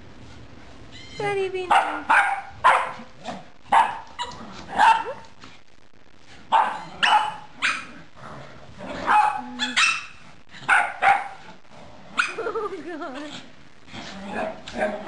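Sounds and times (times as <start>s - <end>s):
dog barking: 1.7s - 3.1s, 3.7s - 5.2s, 6.5s - 7.9s, 9.0s - 11.4s.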